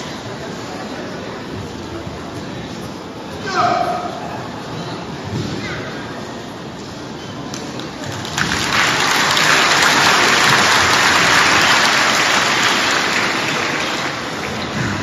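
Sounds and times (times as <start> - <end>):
audience applauding: 8.0 - 15.0.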